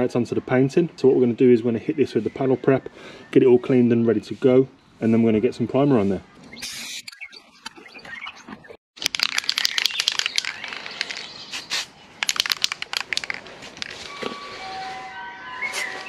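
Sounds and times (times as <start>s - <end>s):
whistle-like tones: 14.0s - 16.0s.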